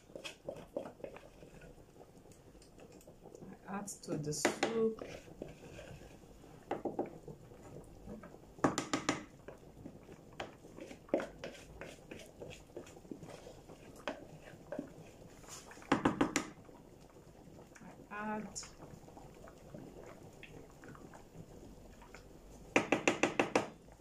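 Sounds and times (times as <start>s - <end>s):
wooden spoon knocking a bowl: 8.6s - 9.3s, 15.9s - 16.5s, 22.8s - 23.7s.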